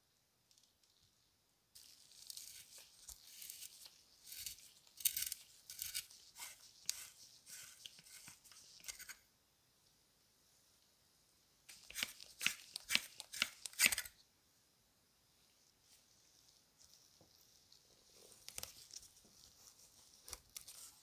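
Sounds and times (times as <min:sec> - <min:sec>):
threads scraping and rasping: 0:01.8 - 0:09.2.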